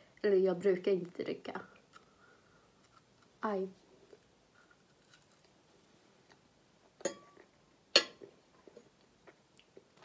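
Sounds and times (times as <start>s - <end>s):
metal fork clinking on ceramic plate: 7.0s - 7.4s, 8.0s - 8.2s.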